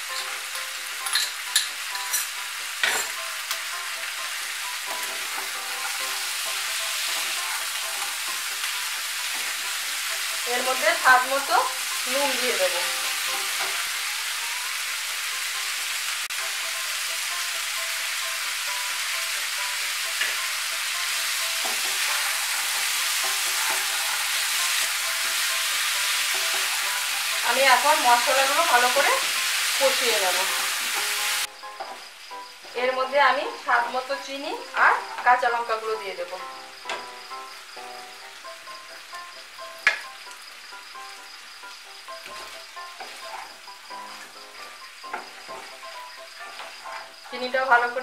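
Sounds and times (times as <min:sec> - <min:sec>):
vegetables sizzling in frying pan: 0:00.0 - 0:48.0
spatula stirring in pan: 0:21.5 - 0:27.8, 0:42.2 - 0:47.2.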